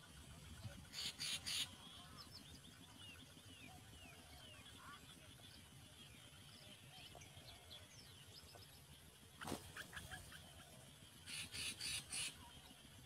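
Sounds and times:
faint bird chirps: 0.1s - 13.0s
nestlings begging calls: 0.9s - 2.4s, 11.2s - 12.4s.

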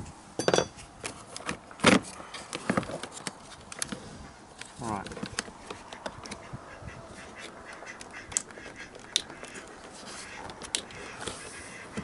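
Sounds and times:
plastic panel clicks and rubbing: 7.4s - 12.0s
pop clips snapping: 7.8s - 9.6s.

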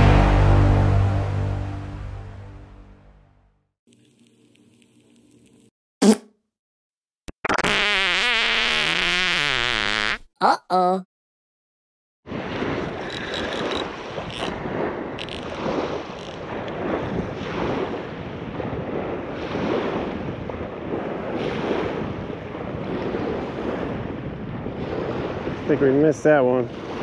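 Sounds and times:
surf washing onto beach: 12.3s - 27.0s
wind over microphone: 12.3s - 27.0s.

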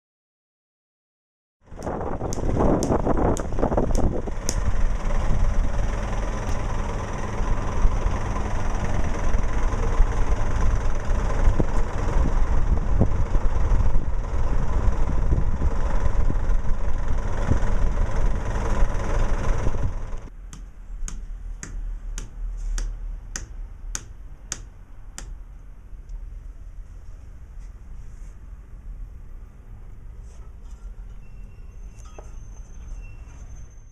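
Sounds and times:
engine running: 1.6s - 31.2s
rubber mallet tapping paving: 1.8s - 4.7s, 20.5s - 25.4s.

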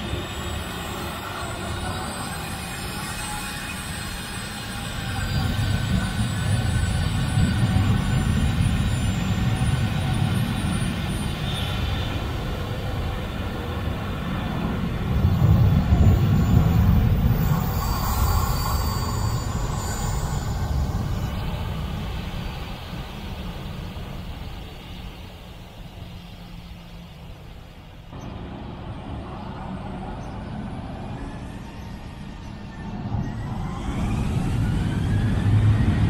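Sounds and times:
jet engines rumbling with whine: 0.0s - 36.0s.

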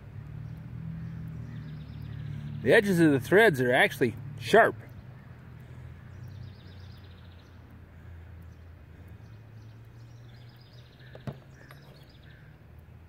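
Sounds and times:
faint bird chirps: 4.9s - 12.6s.

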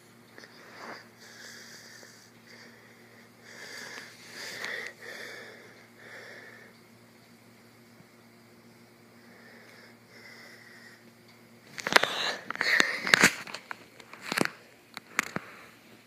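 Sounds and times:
hissy breaths: 0.3s - 6.9s, 8.7s - 13.3s, 14.3s - 16.0s.

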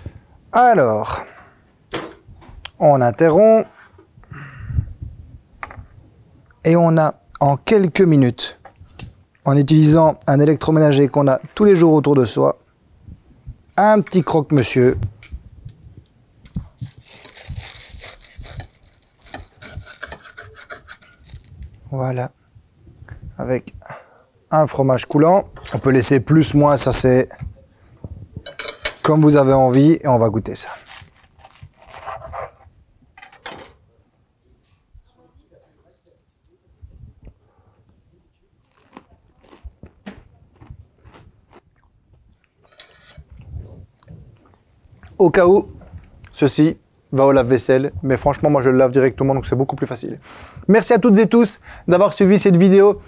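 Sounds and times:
knife sawing through crisp toast: 16.8s - 21.5s, 30.6s - 32.6s
crunching toasted bread: 30.8s - 32.0s, 38.6s - 41.9s.

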